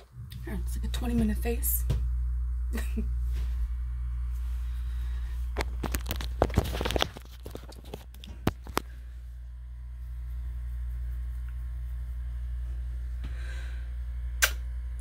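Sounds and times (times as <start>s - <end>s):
low hum: 0.0s - 15.0s
phone handling rubbing and rustling: 5.5s - 9.0s.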